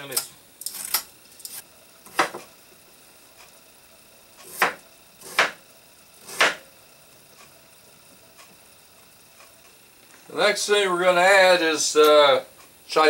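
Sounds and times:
knife chopping on wooden board: 2.1 - 2.4, 4.5 - 5.6, 6.2 - 6.7.

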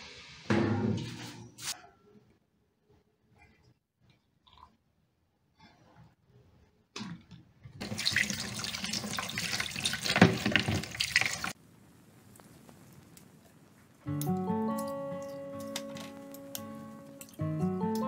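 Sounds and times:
tap water splashing into a bowl: 7.8 - 11.5.

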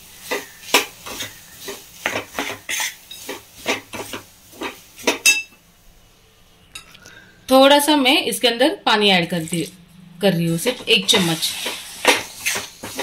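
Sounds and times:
spoon scraping metal pan: 0.3 - 5.5, 10.4 - 13.0.

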